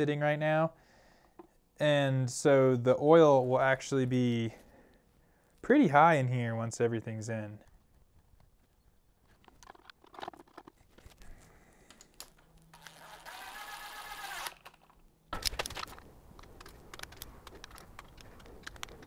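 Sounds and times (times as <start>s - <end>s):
cordless drill motor whine: 12.6s - 15.0s
ratchet clicking: 12.7s - 14.9s
hand tools clicking on metal: 14.3s - 19.0s.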